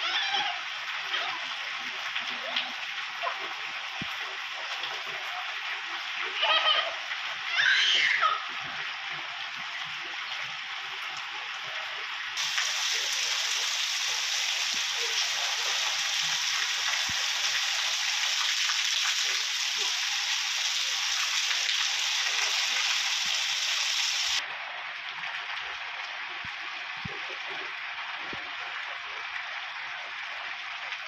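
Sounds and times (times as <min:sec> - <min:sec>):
heavy rain pouring: 0:00.0 - 0:24.6.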